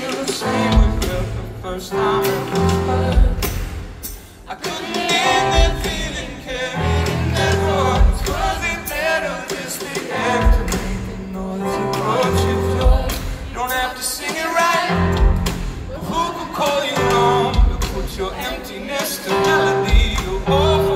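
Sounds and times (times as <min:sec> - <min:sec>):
man singing: 0:00.0 - 0:03.7, 0:04.5 - 0:20.9
live band music: 0:00.0 - 0:20.9.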